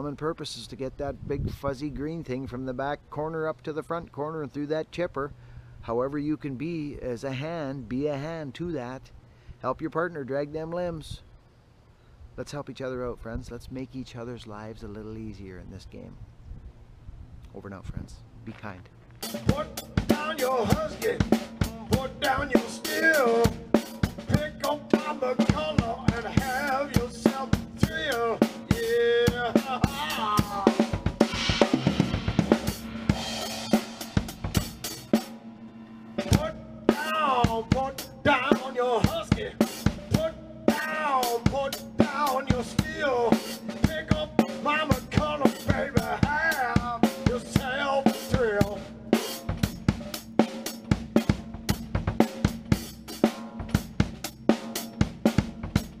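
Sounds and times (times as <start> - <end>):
rock drum kit playing: 19.2 - 56.0
man singing: 19.4 - 31.0, 36.3 - 48.9.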